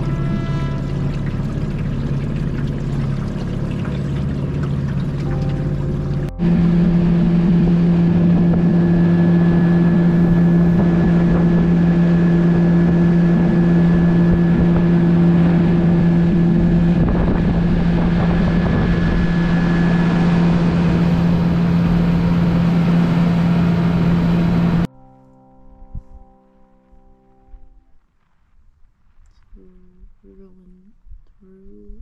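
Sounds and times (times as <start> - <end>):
outboard motor humming: 0.0 - 24.9
water rushing: 0.0 - 24.9
wind: 0.0 - 32.0.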